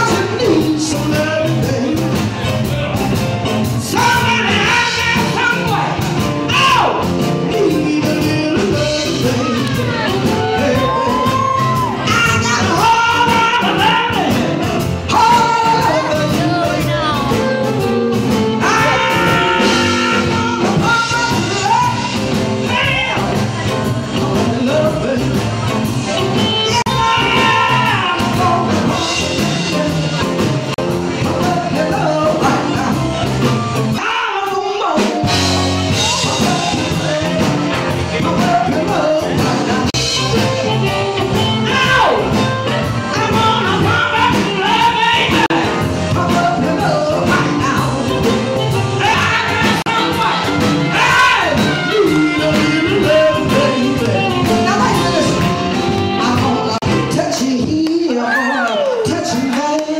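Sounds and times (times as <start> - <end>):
drums: 0.0 - 59.9
guitar: 0.0 - 59.9.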